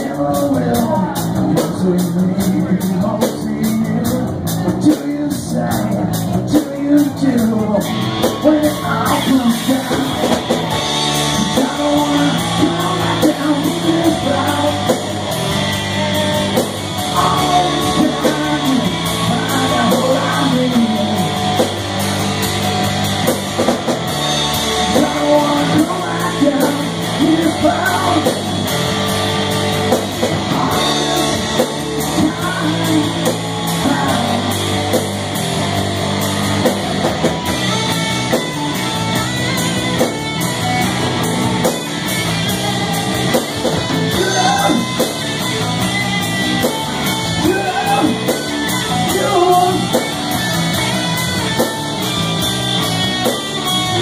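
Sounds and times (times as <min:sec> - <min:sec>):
drum kit: 0:00.0 - 0:54.0
electric bass: 0:00.0 - 0:54.0
electric guitar: 0:00.0 - 0:54.0.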